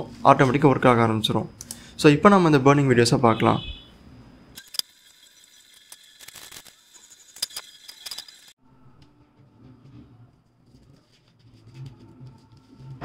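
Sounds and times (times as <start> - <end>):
sharp clicks and clinks: 4.6 - 8.6.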